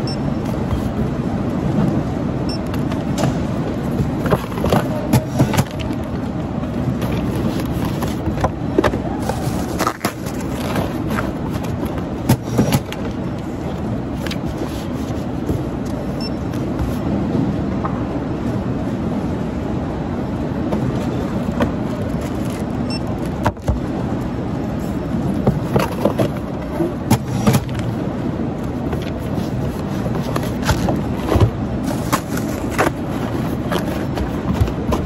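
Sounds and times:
cardboard boxes knocking: 4.0 - 5.9.

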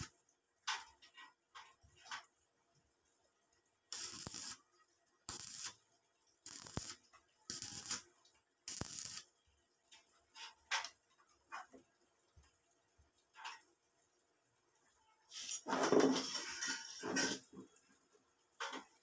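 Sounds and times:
stick welder arcing: 3.9 - 4.6, 5.3 - 5.8, 6.4 - 9.3.

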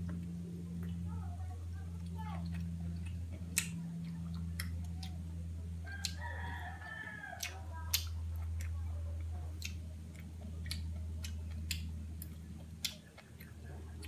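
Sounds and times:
steady low hum: 0.0 - 14.0
cucumber crunching being chewed: 2.0 - 5.3, 5.9 - 14.0
rooster crowing: 5.8 - 7.7.

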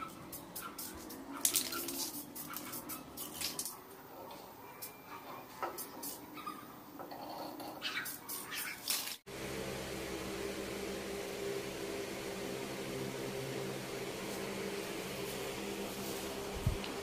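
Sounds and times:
spray paint can hissing: 0.0 - 3.8, 5.8 - 6.2
machine hum with low tones: 9.3 - 17.0.

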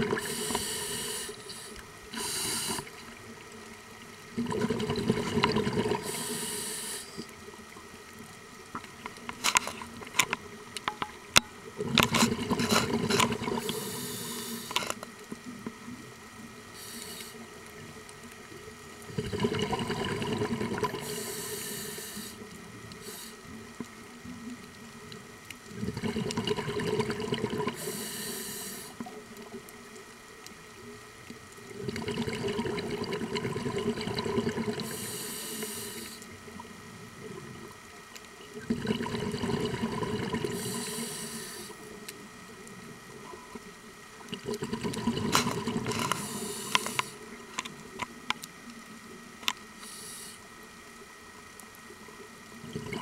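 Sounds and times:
diver breathing through regulator: 0.0 - 3.0, 5.9 - 7.2, 12.1 - 15.0, 16.8 - 17.4, 20.8 - 22.4, 27.7 - 29.0, 34.6 - 36.3, 39.4 - 41.8, 45.3 - 47.2, 49.8 - 50.4
exhaled bubbles rushing: 4.3 - 6.1, 19.1 - 21.0, 25.8 - 27.8, 31.7 - 34.9, 38.6 - 40.6, 44.3 - 46.2, 52.6 - 53.0.

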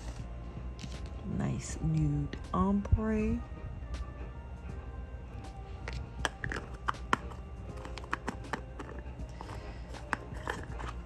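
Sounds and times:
faint background music: 0.0 - 11.0
plastic jars clicking: 5.8 - 11.0.

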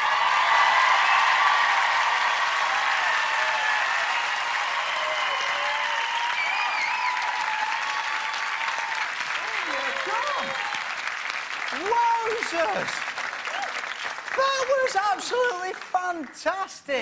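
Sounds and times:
whoops and shouts: 0.0 - 10.9
audience applauding and cheering: 0.0 - 17.0.

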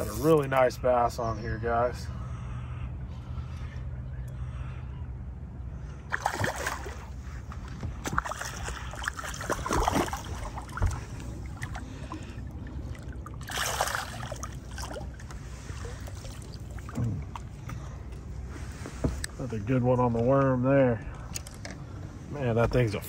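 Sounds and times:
low steady hum: 0.0 - 23.0
fish splashing at water surface: 6.1 - 7.2, 8.0 - 17.5.

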